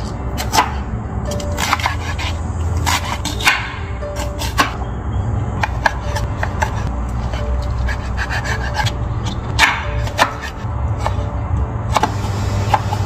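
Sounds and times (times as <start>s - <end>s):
soft background music: 0.0s - 13.0s
knife chopping on wooden board: 0.4s - 0.8s, 1.6s - 4.8s, 5.6s - 6.9s, 7.9s - 11.2s, 11.9s - 13.0s.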